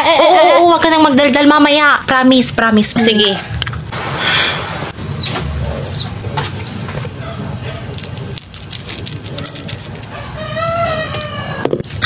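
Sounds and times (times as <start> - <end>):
low rumble: 3.5 - 7.6.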